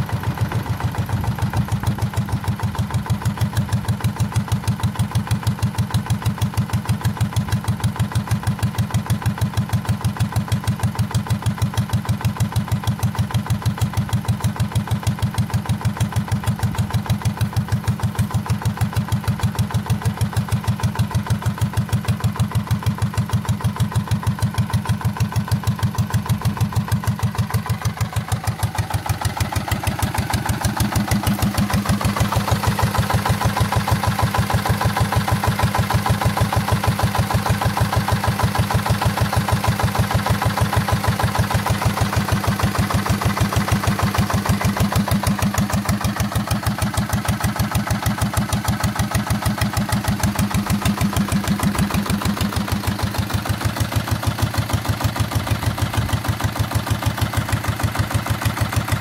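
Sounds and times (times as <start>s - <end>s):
diesel engine running: 0.0s - 59.0s.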